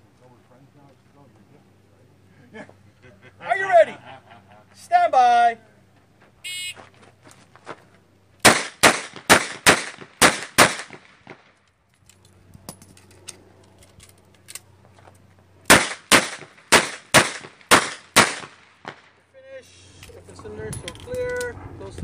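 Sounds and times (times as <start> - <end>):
revolver gunshots: 8.4 - 11.6, 15.7 - 19.2.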